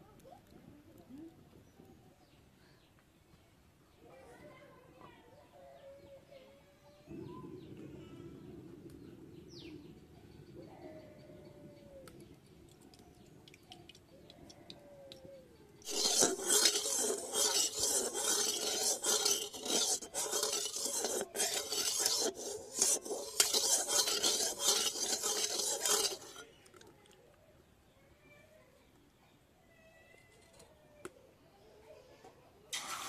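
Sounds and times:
metal spatula scraping a wok: 15.8s - 26.4s.

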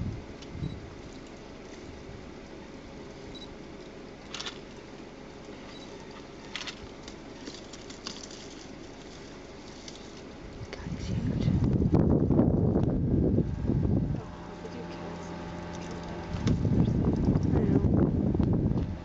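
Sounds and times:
low rumble: 0.0s - 2.4s, 10.4s - 19.0s.

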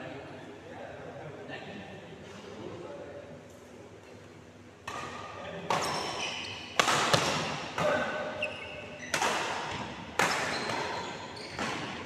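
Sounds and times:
rackets hitting shuttlecock: 4.8s - 8.2s, 9.1s - 12.0s.

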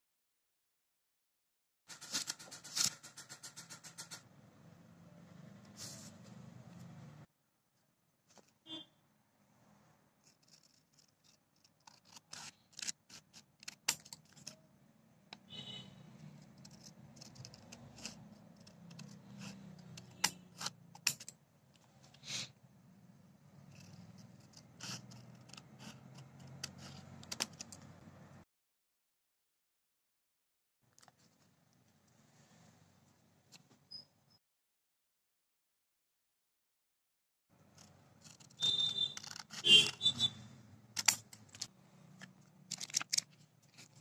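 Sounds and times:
scissors snipping paper: 10.2s - 14.6s, 16.2s - 21.3s, 23.7s - 27.8s, 37.8s - 40.1s, 41.0s - 44.0s.

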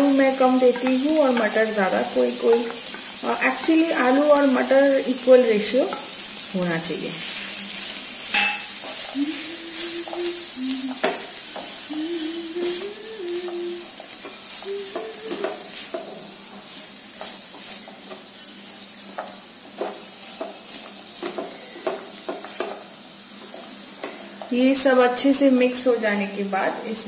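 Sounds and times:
light sizzle of frying: 0.0s - 27.0s
wooden spatula scraping a pan: 12.6s - 22.8s.

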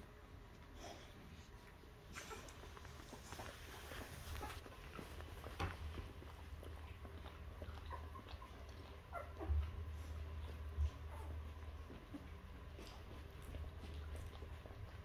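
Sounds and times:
dog licking puppies: 0.0s - 15.0s.

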